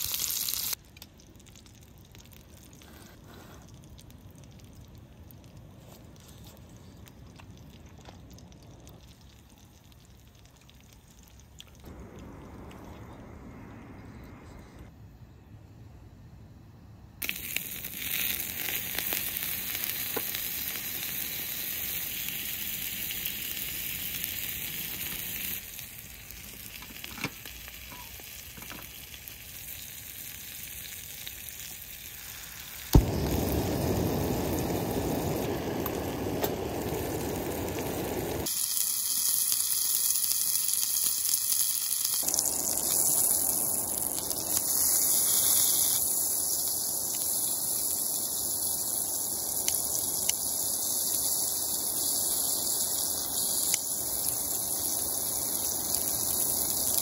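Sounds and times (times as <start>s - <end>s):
food sizzling in a hot pan: 0.0s - 0.8s, 17.2s - 57.0s.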